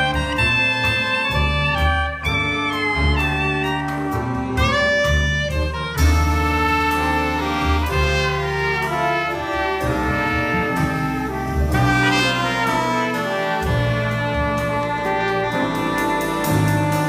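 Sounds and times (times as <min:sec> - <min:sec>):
horn ensemble chords: 0:00.0 - 0:17.0
low tuba and double bass: 0:00.0 - 0:17.0
piano: 0:00.0 - 0:17.0
drum and cymbal strokes: 0:06.0 - 0:17.0.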